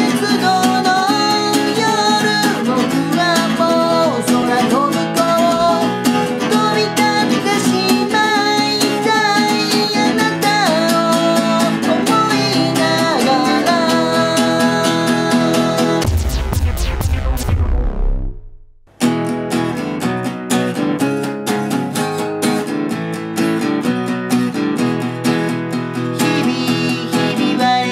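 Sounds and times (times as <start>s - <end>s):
man singing: 0.0s - 16.1s, 26.2s - 27.9s
acoustic guitar strumming: 0.0s - 27.9s.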